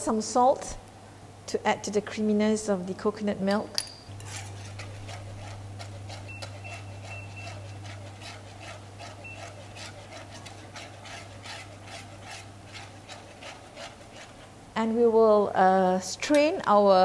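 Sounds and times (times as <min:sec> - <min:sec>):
steady low hum: 0:00.0 - 0:17.0
whisk swishing in a pan: 0:04.2 - 0:14.6.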